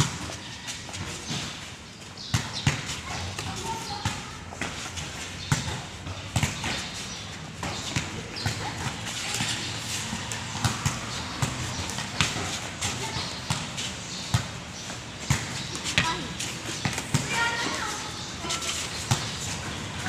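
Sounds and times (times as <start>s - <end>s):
sharp slaps and thuds: 2.2s - 17.4s.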